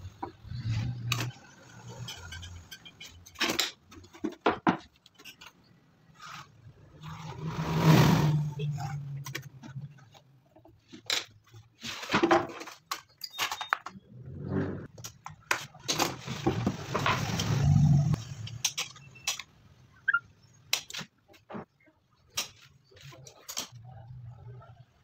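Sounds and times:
wood and metal clicks and knocks: 2.1 - 5.7
boards scraping and sliding: 6.1 - 10.0, 14.1 - 14.9, 15.9 - 18.5.

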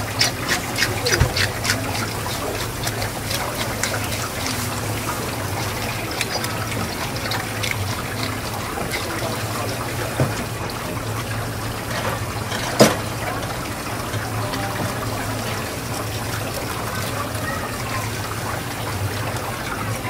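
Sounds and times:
brush scrubbing fish scales: 0.0 - 10.1
tap water running: 0.0 - 20.0.

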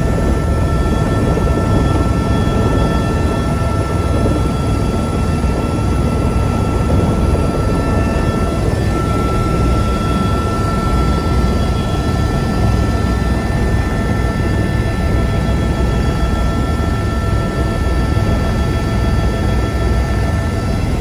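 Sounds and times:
helicopter engine low rumble: 0.0 - 21.0
high turbine whine: 0.0 - 21.0.

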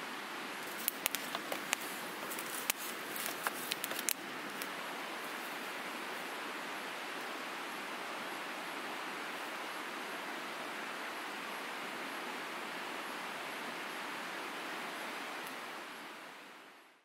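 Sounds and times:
fire hissing: 0.6 - 4.7
campfire crackling and popping: 0.6 - 4.8.

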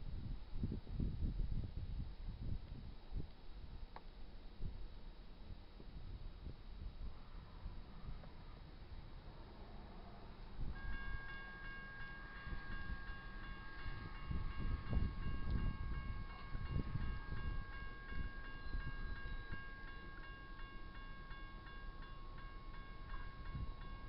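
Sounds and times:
railroad crossing bell ringing: 10.4 - 24.0.

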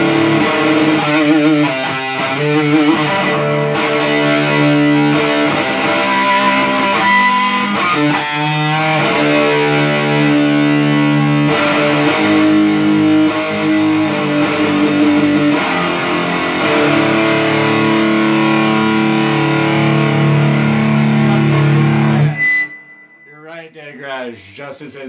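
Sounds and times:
distorted electric guitar riff: 0.0 - 23.7.

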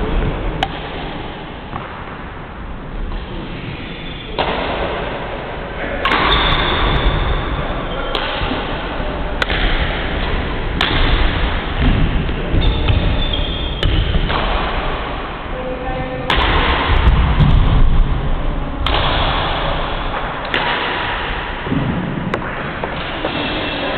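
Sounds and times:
rushing hall noise: 0.0 - 23.9
rackets hitting shuttlecock: 0.5 - 2.2, 4.0 - 5.4, 6.0 - 15.2, 16.3 - 17.8, 18.8 - 23.5.

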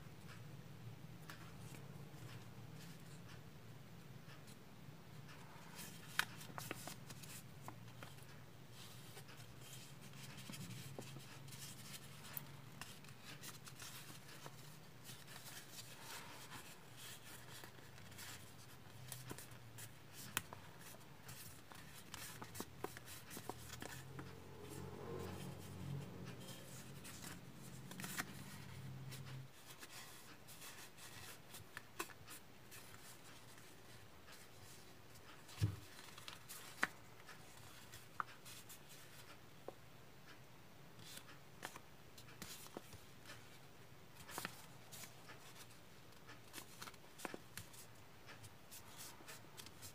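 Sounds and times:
paper rustling and crackling: 26.3 - 39.4.

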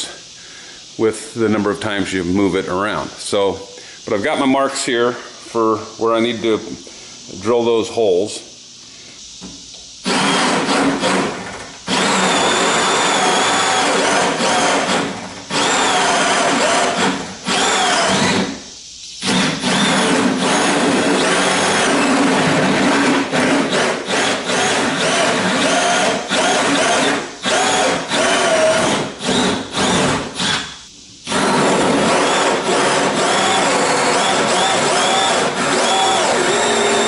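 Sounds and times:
electric drill boring into wood: 10.0 - 18.6, 19.2 - 30.7, 31.3 - 37.0.

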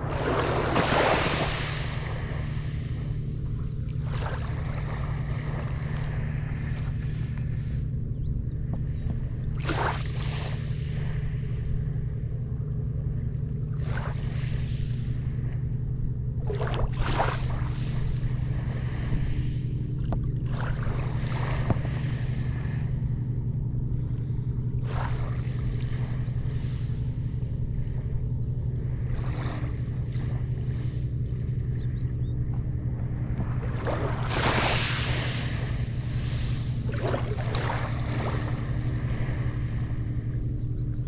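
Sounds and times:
small waves lapping: 0.0 - 12.4, 13.2 - 41.0
low motor drone: 0.0 - 41.0.

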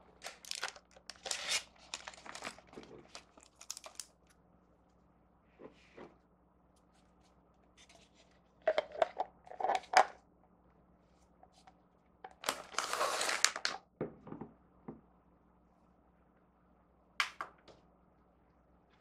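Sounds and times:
plastic bag crinkling: 0.2 - 4.2.

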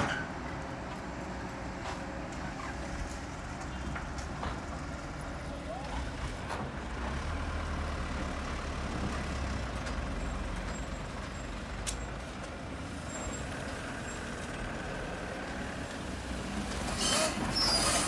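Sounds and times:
diesel engines running: 0.0 - 18.0
sand loading into truck: 16.2 - 18.0.

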